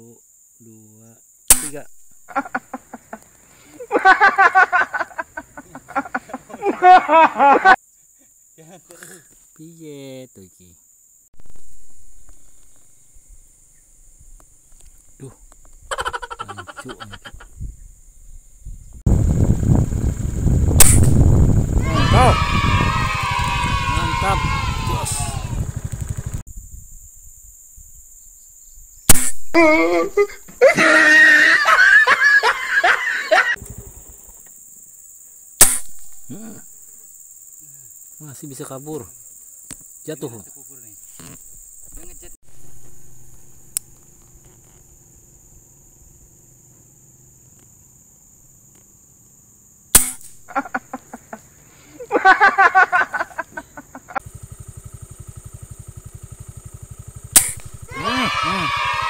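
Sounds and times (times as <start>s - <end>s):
air rifle shot crack: 1.5s - 1.9s, 20.8s - 21.4s, 29.1s - 29.5s, 35.6s - 36.2s, 49.9s - 50.4s, 57.3s - 57.9s
people laughing loudly: 2.3s - 7.8s, 15.9s - 17.5s, 30.0s - 33.6s, 50.5s - 51.4s, 52.0s - 54.2s
fast low pulsing: 18.8s - 26.4s.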